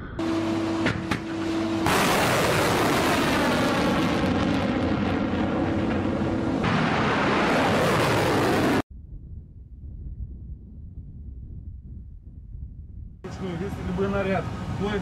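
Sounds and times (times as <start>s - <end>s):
rushing rocket motor: 0.2s - 8.8s
missile launch blast: 1.0s - 8.8s.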